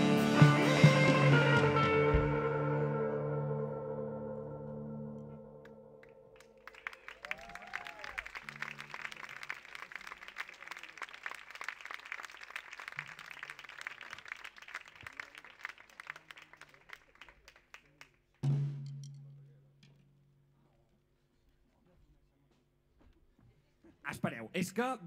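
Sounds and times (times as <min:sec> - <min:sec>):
audience applauding: 0:06.4 - 0:18.4.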